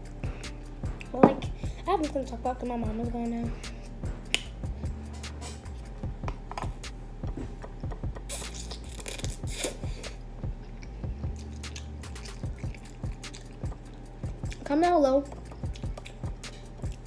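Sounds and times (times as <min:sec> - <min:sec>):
chewing noodles: 0:10.6 - 0:14.7, 0:15.5 - 0:17.0.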